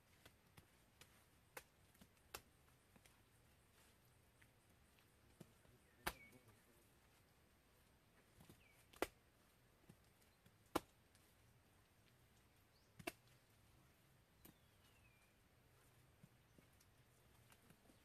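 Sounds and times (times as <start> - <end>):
faint bird chirp: 3.2 - 7.4, 8.2 - 8.9, 12.4 - 18.0
hands slapping mud onto wall: 9.9 - 11.2, 13.0 - 13.3.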